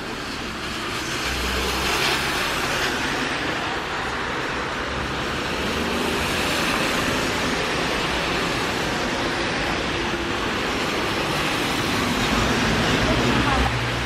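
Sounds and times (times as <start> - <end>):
car tyres hissing on wet road: 0.0 - 14.0
rain falling on wet pavement: 0.0 - 14.0.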